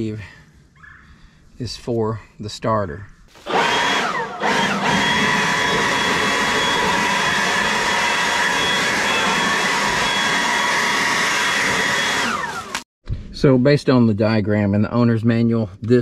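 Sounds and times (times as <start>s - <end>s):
electric fan motor whining: 3.3s - 12.8s.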